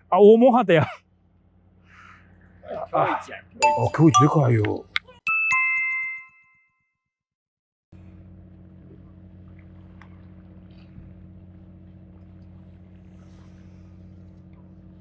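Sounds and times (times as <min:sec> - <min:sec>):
low mechanical hum: 0:00.0 - 0:03.6, 0:08.0 - 0:15.0
bell-like chime: 0:03.6 - 0:04.7, 0:05.3 - 0:06.8.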